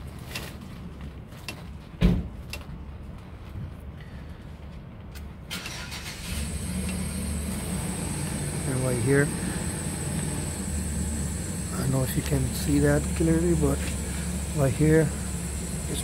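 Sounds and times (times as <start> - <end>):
vehicle engine running: 6.0 - 16.0.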